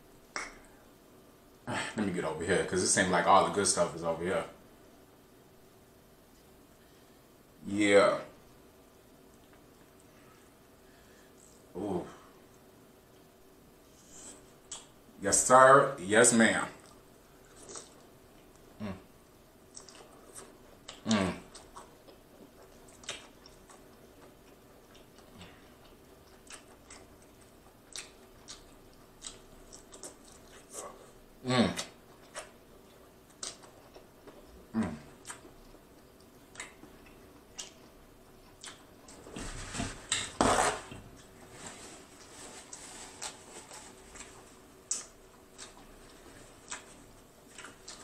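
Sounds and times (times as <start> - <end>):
wet chewing and mouth sounds: 16.8 - 18.7, 19.7 - 39.4, 42.1 - 48.0
wet chewing mouth clicks: 33.3 - 34.5, 35.2 - 39.2, 44.9 - 48.0.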